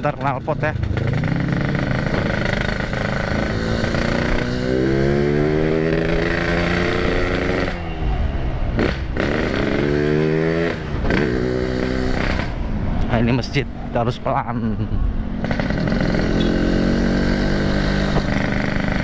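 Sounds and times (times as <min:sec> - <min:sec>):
motorcycle engine accelerating: 0:00.0 - 0:13.0, 0:14.6 - 0:19.0.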